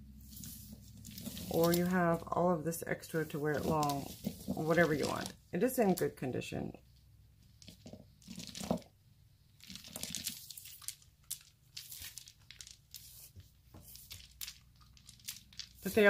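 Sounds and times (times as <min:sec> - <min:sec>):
faint rustling on cloth: 0:00.1 - 0:02.4, 0:03.0 - 0:05.4.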